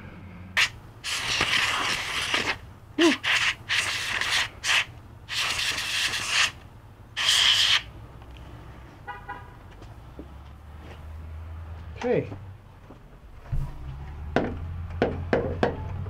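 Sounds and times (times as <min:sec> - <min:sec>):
compressed air hissing bursts: 0:00.6 - 0:06.6, 0:07.2 - 0:07.9.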